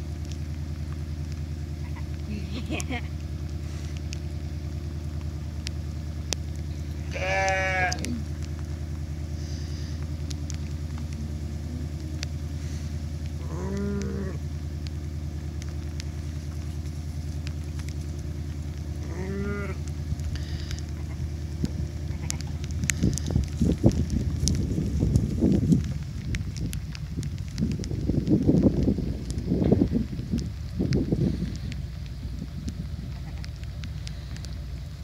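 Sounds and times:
low mechanical hum: 0:00.0 - 0:35.0
sheep bleating: 0:06.9 - 0:08.3, 0:13.4 - 0:14.4, 0:19.0 - 0:19.8.

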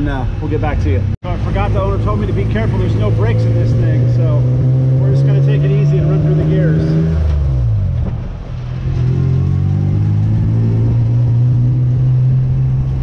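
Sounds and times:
buggy engine running: 0:00.0 - 0:13.0.

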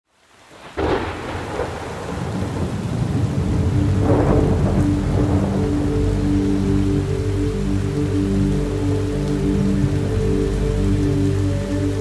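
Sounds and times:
steady rain: 0:00.0 - 0:12.0
thunder clap rumbling: 0:00.5 - 0:07.8
soft sustained music tones: 0:03.3 - 0:12.0.

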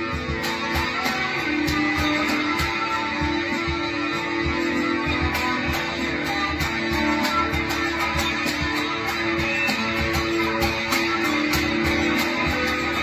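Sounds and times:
drum machine beat: 0:00.0 - 0:13.0
electric guitar layered notes: 0:00.0 - 0:13.0.

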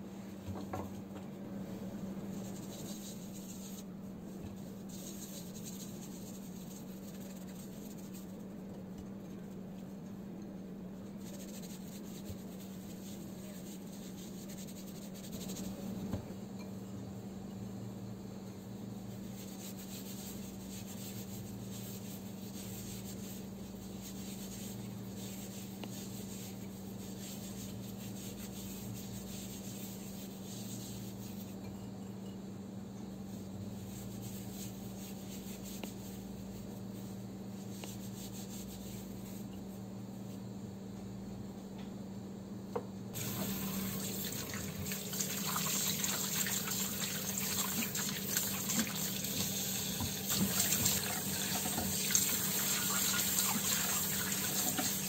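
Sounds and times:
steady low hum: 0:00.0 - 0:51.2
hands scrubbing lemons with grains: 0:01.7 - 0:10.0, 0:11.0 - 0:16.1, 0:19.1 - 0:31.6, 0:33.3 - 0:39.6, 0:43.2 - 0:55.0.

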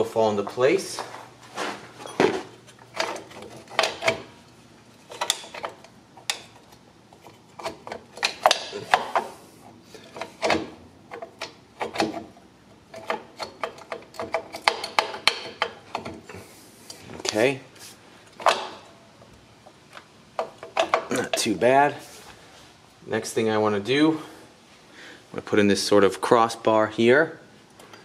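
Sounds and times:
metallic clicks and clanks: 0:12.9 - 0:16.4.

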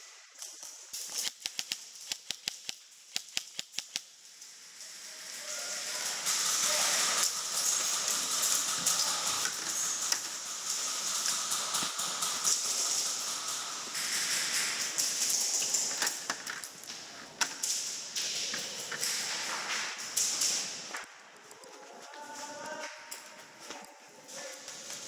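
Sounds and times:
scattered ticks: 0:01.0 - 0:04.5
steady hiss: 0:01.0 - 0:21.1.

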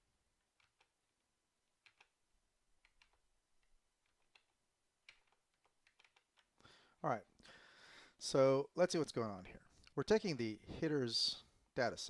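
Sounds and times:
faint computer keyboard clicks: 0:02.8 - 0:03.2.

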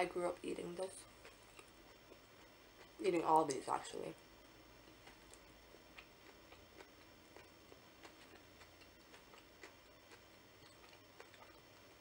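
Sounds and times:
faint chewing mouth clicks: 0:04.8 - 0:11.8.

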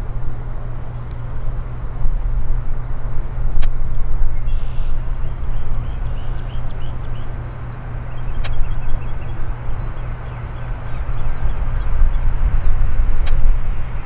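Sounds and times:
jet engines rumbling: 0:00.0 - 0:14.0
faint bird chirps: 0:03.4 - 0:13.7.

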